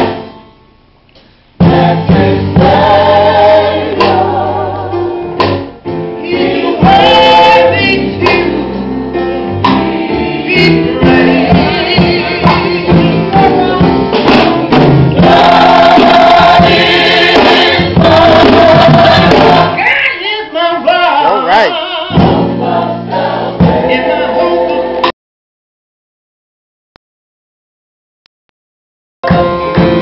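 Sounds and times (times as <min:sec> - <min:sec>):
gospel choir singing: 0:01.6 - 0:25.1
man singing lead: 0:19.5 - 0:22.2.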